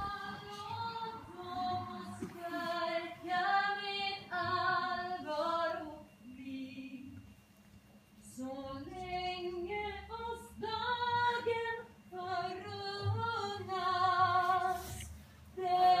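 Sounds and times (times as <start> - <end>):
woman singing slow melody: 0.0 - 7.3, 8.3 - 16.0.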